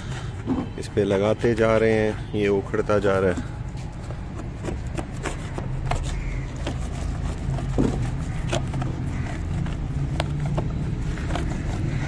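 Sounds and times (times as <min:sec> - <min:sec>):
paint scraping off metal panel: 0:03.0 - 0:12.0.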